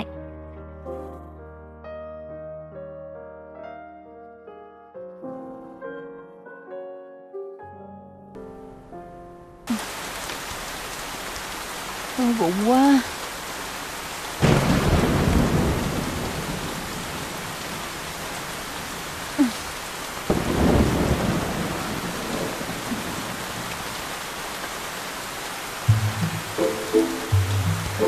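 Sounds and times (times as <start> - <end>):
heavy rain: 9.5 - 28.0
thunderclaps rumbling: 14.4 - 24.7, 25.8 - 28.0.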